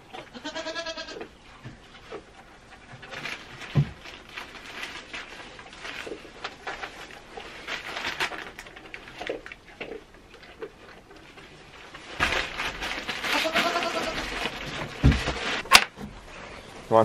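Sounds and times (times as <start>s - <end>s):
goat bleating: 0.3s - 1.3s, 13.3s - 14.3s
soft rustling: 1.8s - 9.5s, 10.8s - 17.0s.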